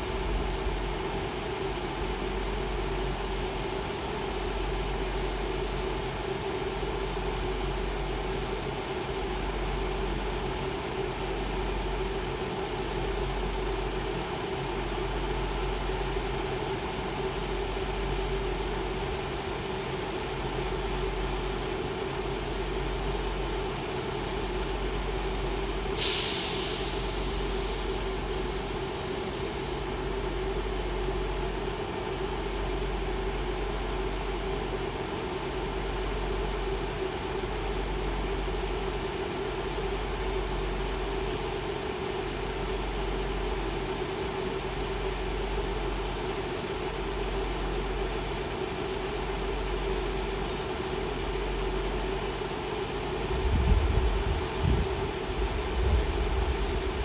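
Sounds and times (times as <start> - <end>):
diesel engines idling: 0.0 - 57.0
air release hiss: 26.0 - 29.8.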